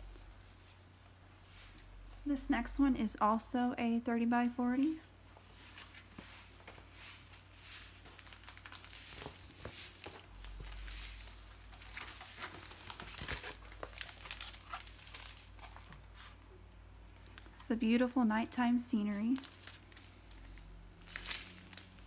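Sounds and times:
canvas and packaging crinkling: 4.6 - 16.4, 19.0 - 22.0.

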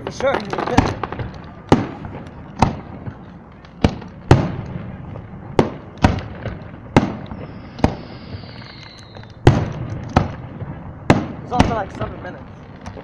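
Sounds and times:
fireworks bangs: 0.0 - 13.0
faint falling whistle: 7.3 - 9.4.

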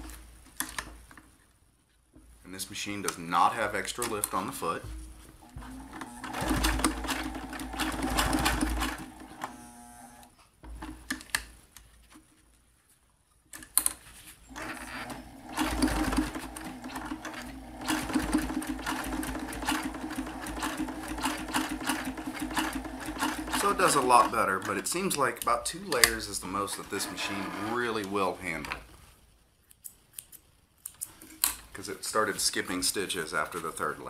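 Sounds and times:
sewing machine stitching: 5.5 - 10.3, 14.5 - 24.9, 26.8 - 28.0
sewing machine clicks: 5.8 - 10.3, 14.5 - 24.8.

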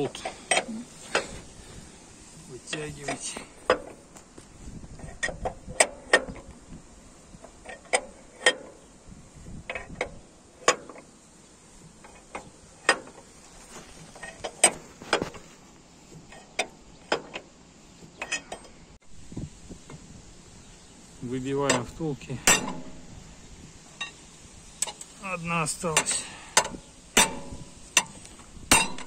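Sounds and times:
metal-on-metal knocks and clanks: 21.6 - 23.1, 26.0 - 29.0.

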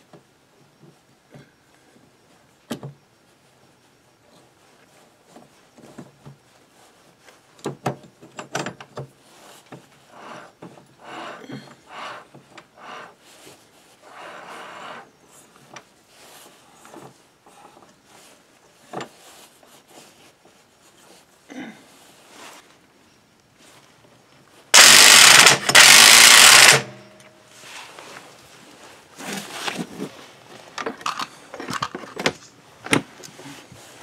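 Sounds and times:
metal parts clicking and knocking: 24.8 - 27.0, 30.8 - 32.5
metal parts scraping: 24.8 - 27.2.

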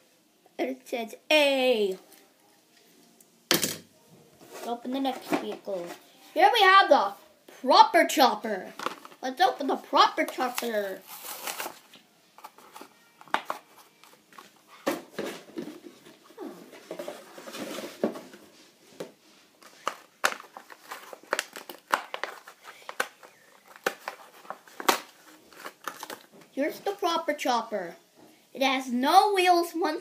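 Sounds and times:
plastic packaging crinkling: 10.4 - 14.8, 19.6 - 26.3.

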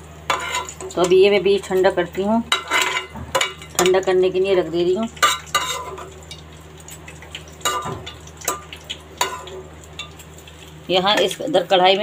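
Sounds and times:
oil sizzling: 0.0 - 12.0
steel ladle scraping a pan: 0.3 - 0.8, 2.5 - 3.9, 5.2 - 6.1.

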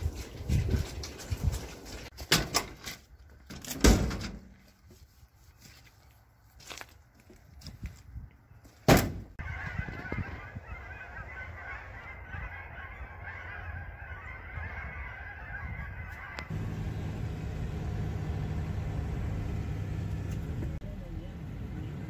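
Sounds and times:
geese honking: 9.4 - 17.8
low steady rumble: 16.5 - 22.0.

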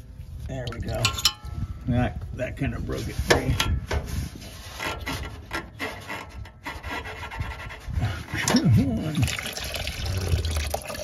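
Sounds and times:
rubber hose rubbing and scraping: 2.8 - 9.1.

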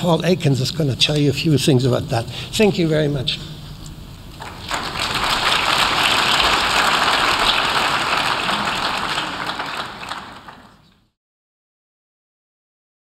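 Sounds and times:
audience applauding: 4.4 - 11.0.

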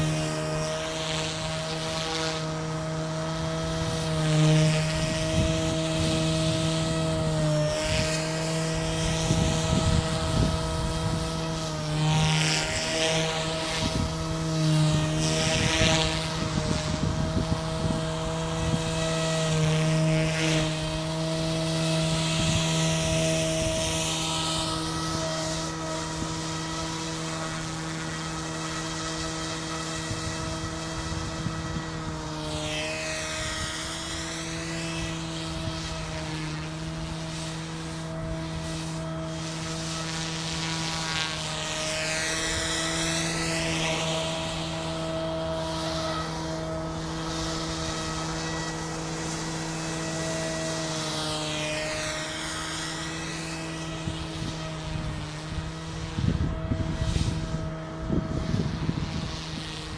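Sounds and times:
rc helicopter rotor whine: 0.0 - 59.9
rotor swish passing by: 0.0 - 59.9.

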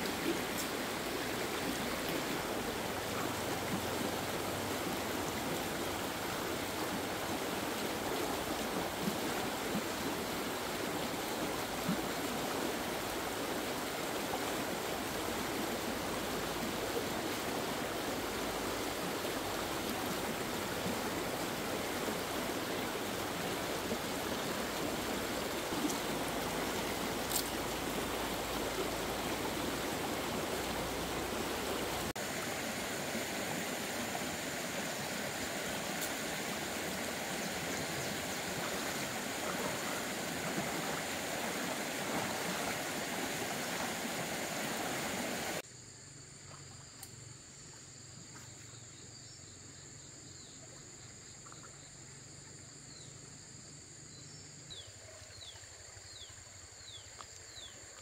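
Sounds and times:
stream flowing over stones: 0.0 - 45.6.

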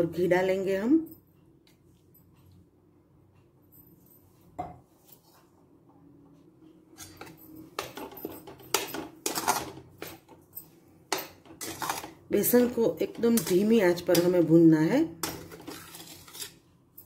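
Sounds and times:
metal spatula scraping a pan: 9.2 - 10.2, 11.5 - 12.6, 15.2 - 16.7.

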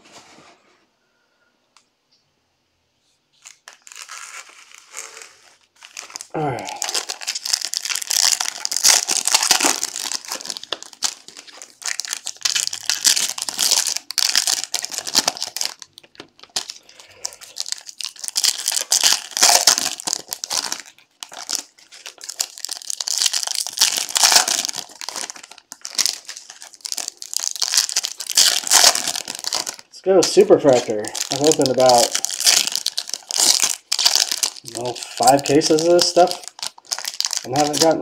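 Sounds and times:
foil wrappers crinkling: 3.4 - 38.0.

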